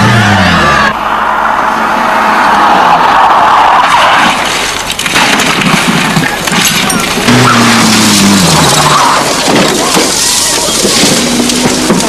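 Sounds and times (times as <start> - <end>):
engine note: 0.0 - 2.9
rally car rough noise: 0.0 - 12.0.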